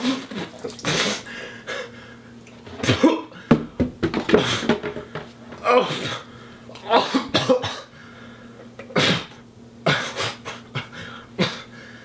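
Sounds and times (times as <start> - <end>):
man coughing and sputtering: 2.8 - 3.4, 6.8 - 7.9, 8.8 - 11.7.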